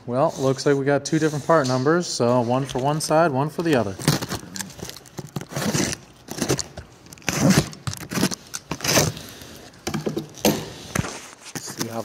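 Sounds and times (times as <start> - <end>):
packaging rustling and tearing: 3.5 - 12.0.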